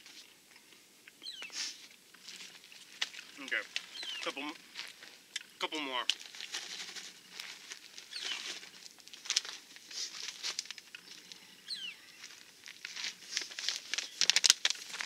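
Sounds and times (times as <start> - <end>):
plastic snack pouch crinkling: 6.0 - 11.3, 12.2 - 15.0.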